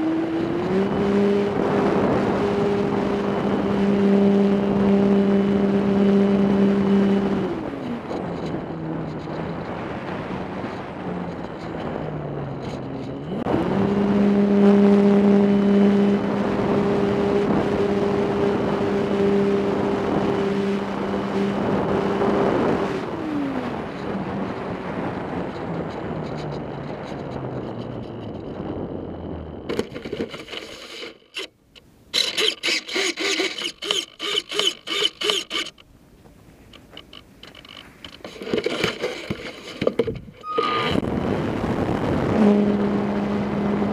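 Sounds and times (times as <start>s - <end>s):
wind on microphone: 0.0s - 30.3s, 39.3s - 43.9s
model plane motor and propeller: 0.0s - 35.9s, 36.6s - 43.9s.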